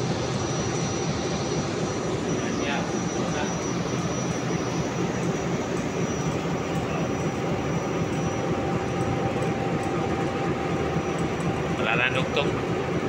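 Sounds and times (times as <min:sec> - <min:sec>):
faint high whine: 0:00.0 - 0:13.0
machinery drone: 0:00.0 - 0:13.0.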